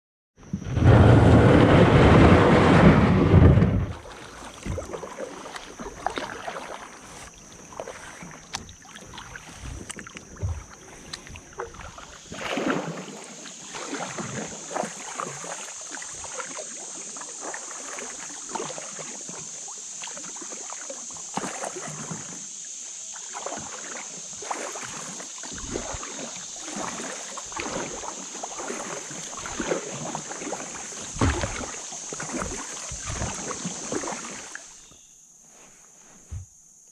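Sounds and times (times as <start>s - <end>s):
loud low rumble: 0.6s - 4.0s
water lapping on plastic hull: 0.8s - 34.9s
paddle strokes splashing: 0.8s - 35.0s.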